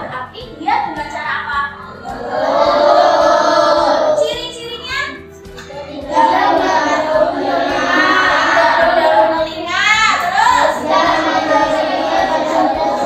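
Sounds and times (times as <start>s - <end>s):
children singing in unison: 2.0s - 4.2s, 5.7s - 13.0s.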